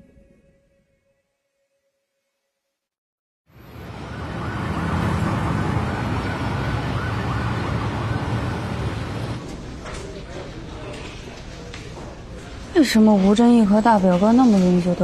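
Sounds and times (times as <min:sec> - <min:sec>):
city traffic: 0:03.5 - 0:10.1
siren wailing: 0:03.7 - 0:09.4.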